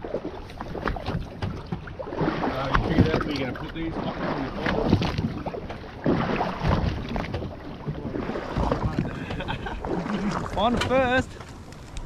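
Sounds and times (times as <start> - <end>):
water around boat hull: 0.0 - 12.0
wind buffeting microphone: 2.6 - 12.0.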